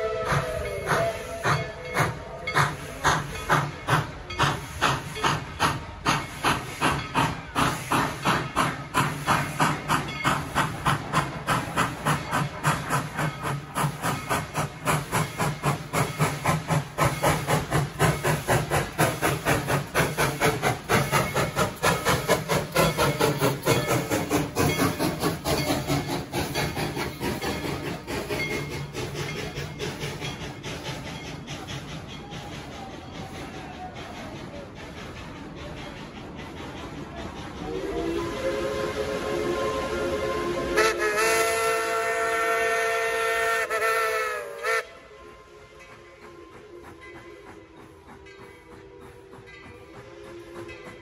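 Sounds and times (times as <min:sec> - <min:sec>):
steam locomotive chuffing: 0:00.0 - 0:51.0.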